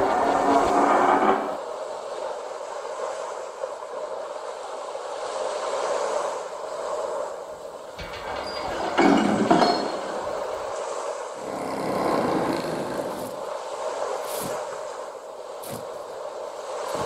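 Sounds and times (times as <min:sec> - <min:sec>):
low rumble: 0:00.0 - 0:01.6
steady rushing noise: 0:00.0 - 0:09.0, 0:10.0 - 0:17.0.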